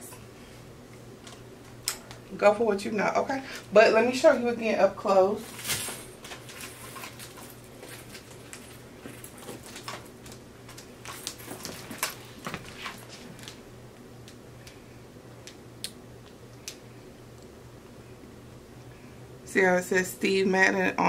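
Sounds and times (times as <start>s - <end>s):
handbags clicking and rustling: 5.4s - 13.6s.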